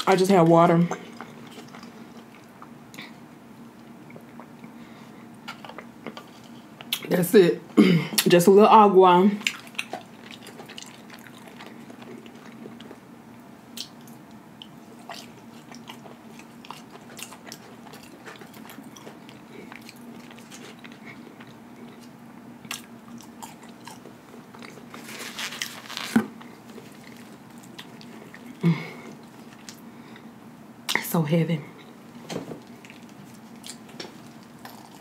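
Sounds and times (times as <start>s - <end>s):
chewing fries: 0.0s - 7.1s, 9.3s - 30.3s, 31.8s - 35.0s
faint steady hum: 0.0s - 35.0s
wet mouth clicks and smacks: 13.8s - 16.0s.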